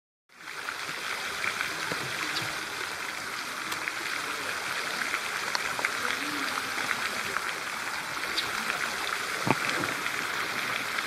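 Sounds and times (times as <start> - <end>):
running water rushing: 0.3 - 11.0.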